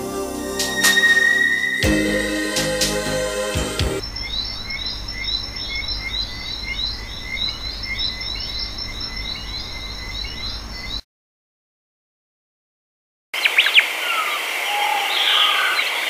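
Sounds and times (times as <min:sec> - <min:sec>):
high thin chirping calls: 0:00.4 - 0:03.0.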